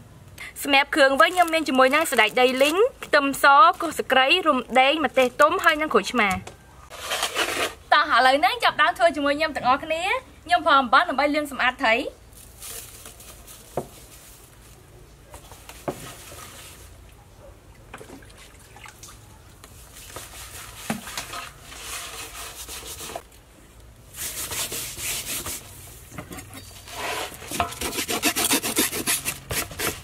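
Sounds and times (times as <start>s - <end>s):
hands scrubbing fish in basin: 18.0s - 23.2s.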